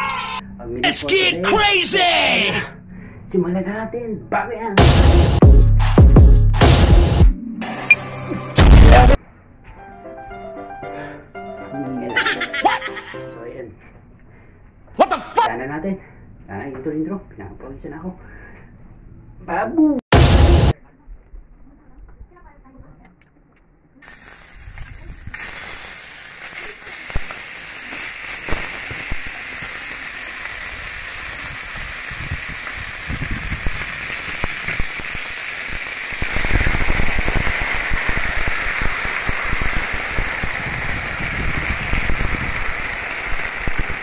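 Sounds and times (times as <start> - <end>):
steak sizzling on hot plate: 24.0 - 44.0.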